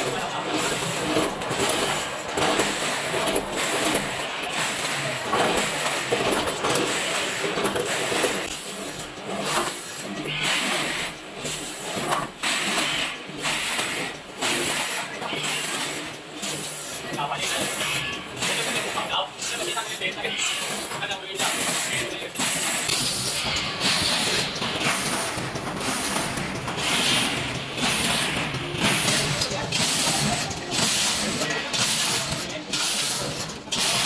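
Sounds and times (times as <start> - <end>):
packing machinery running: 0.0 - 34.0
machine hiss: 20.6 - 34.0.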